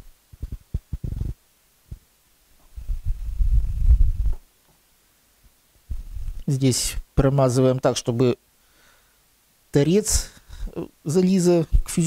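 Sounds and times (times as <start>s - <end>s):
clothing rubbing on microphone: 0.0s - 2.0s, 2.6s - 4.5s, 5.9s - 6.4s.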